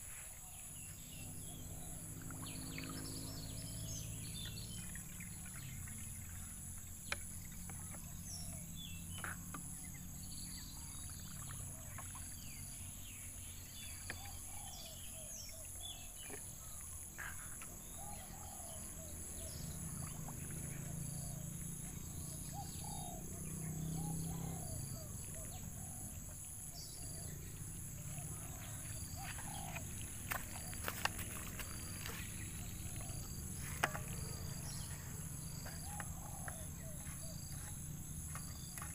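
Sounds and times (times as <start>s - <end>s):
bird chirps: 12.1s - 38.9s.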